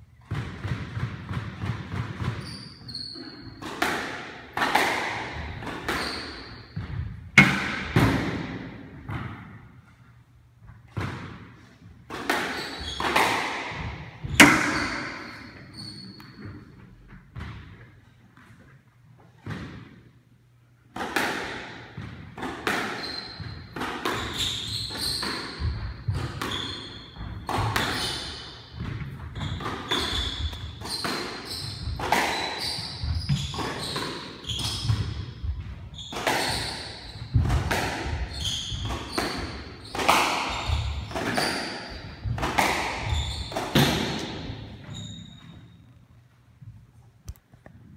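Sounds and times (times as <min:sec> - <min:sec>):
shoe squeaks on hardwood floor: 0:02.2 - 0:03.6, 0:05.4 - 0:07.2, 0:12.4 - 0:13.3, 0:14.2 - 0:17.1, 0:22.9 - 0:37.4, 0:38.1 - 0:42.4, 0:43.0 - 0:46.1
squash ball cracking off racquets: 0:03.2 - 0:09.7, 0:10.8 - 0:16.6, 0:20.9 - 0:44.9.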